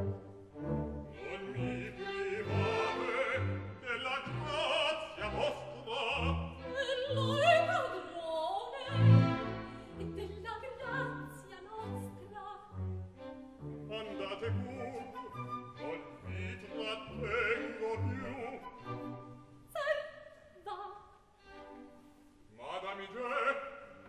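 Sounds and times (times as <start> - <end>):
orchestra playing: 0.0 - 7.9, 12.7 - 19.5
operatic singing with vibrato: 0.0 - 24.0.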